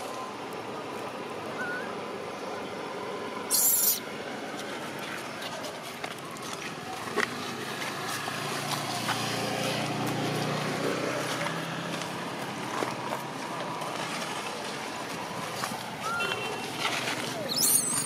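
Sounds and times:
vehicle engine passing: 6.7 - 15.8.

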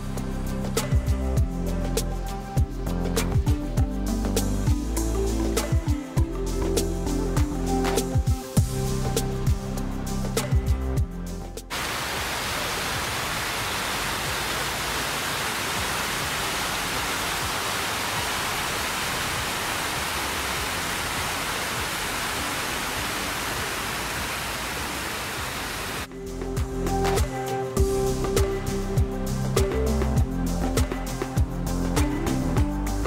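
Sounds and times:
music: 0.0 - 11.8, 13.6 - 24.5, 26.0 - 33.0
fountain water splashing: 11.7 - 26.1.

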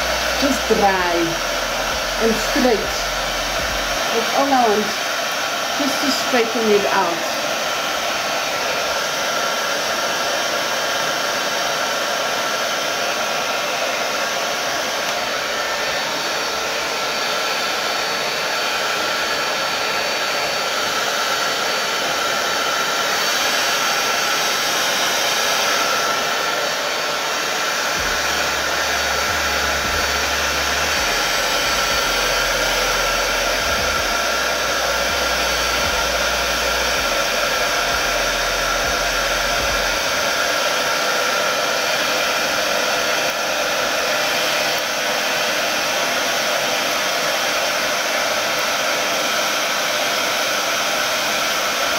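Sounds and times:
hair dryer blowing: 0.0 - 51.9.

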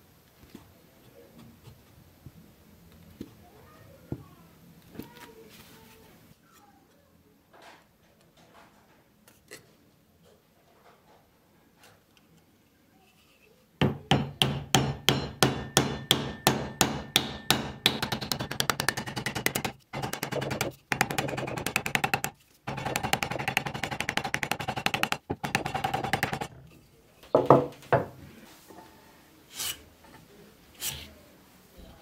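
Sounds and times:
rapid hammer-like striking: 13.8 - 26.5
separate knocks: 13.8 - 26.5.

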